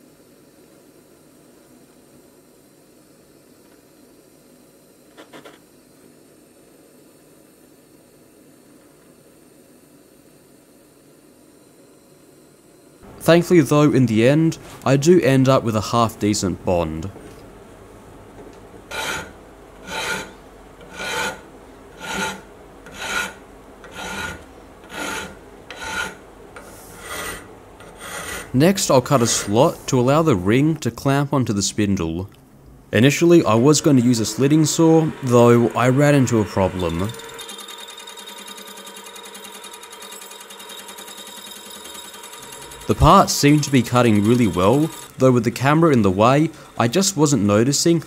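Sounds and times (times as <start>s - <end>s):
file rasping on metal: 18.9s - 28.5s.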